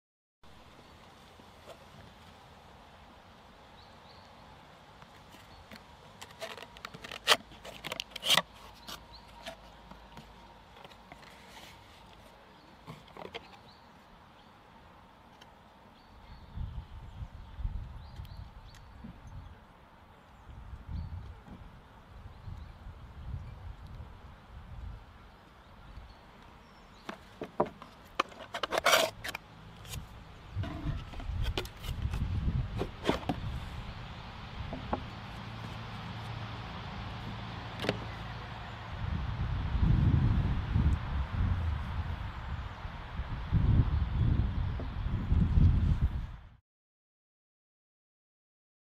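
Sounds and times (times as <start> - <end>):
cardboard and paper rustling: 5.1 - 13.6, 27.0 - 33.4.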